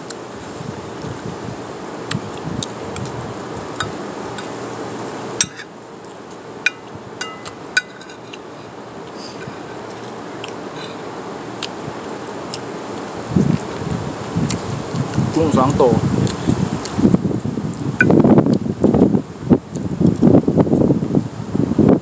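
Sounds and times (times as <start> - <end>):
wind noise on microphone: 0.0 - 5.6, 13.1 - 22.0
metal spoon clinking on plate: 5.4 - 5.7, 6.7 - 8.7.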